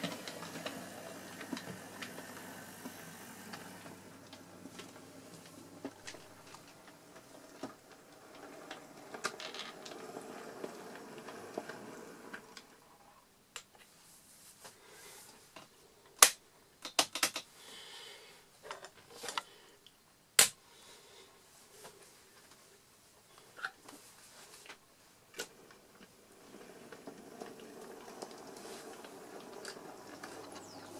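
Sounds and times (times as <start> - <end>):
model train motor hum: 0.0 - 12.8, 25.7 - 30.9
wheels clicking over track: 0.0 - 12.8, 25.4 - 30.9.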